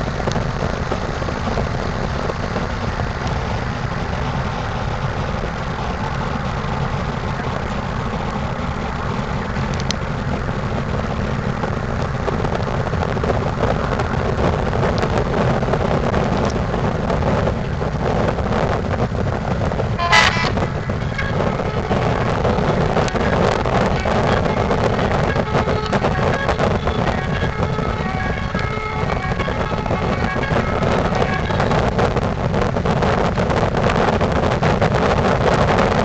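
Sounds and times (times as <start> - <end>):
ship engines rumbling: 0.0 - 36.0
wind noise on microphone: 0.0 - 36.0
short horn toot: 20.0 - 22.2.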